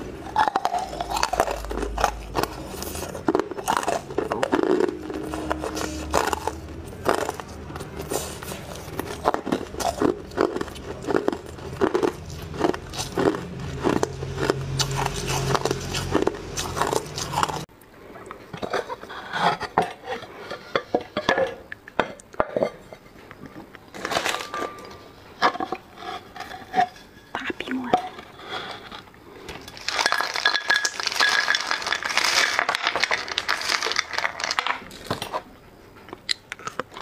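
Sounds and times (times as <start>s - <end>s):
ice crunching while chewed: 0.0s - 27.4s, 28.1s - 37.0s.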